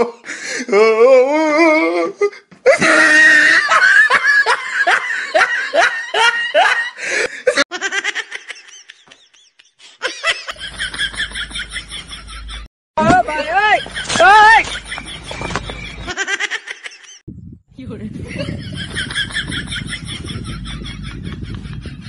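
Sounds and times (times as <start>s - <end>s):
laughter bursts: 2.7s - 12.7s, 18.2s - 22.0s.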